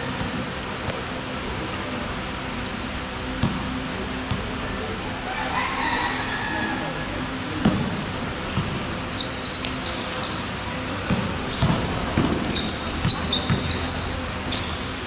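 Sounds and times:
shoes squeaking on court: 0:00.0 - 0:00.5, 0:08.6 - 0:14.8
basketball bouncing on court: 0:03.4 - 0:03.7, 0:07.6 - 0:08.8, 0:09.5 - 0:13.9.

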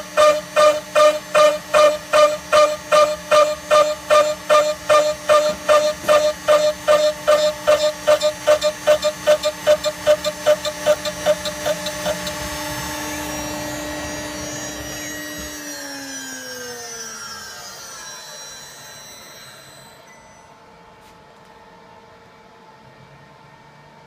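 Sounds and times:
router cutting chatter: 0:00.0 - 0:19.8
spindle whine: 0:00.0 - 0:20.7.

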